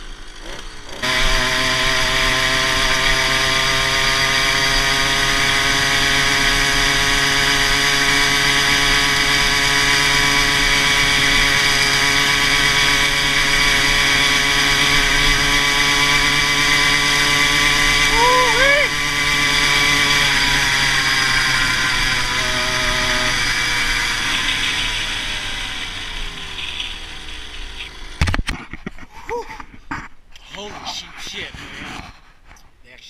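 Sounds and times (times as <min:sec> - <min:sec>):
two-stroke engine under throttle: 0:00.0 - 0:29.0.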